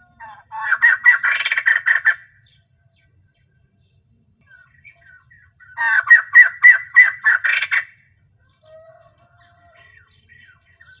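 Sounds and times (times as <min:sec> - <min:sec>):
bird calling rapid notes: 0:00.3 - 0:02.3, 0:05.8 - 0:08.0.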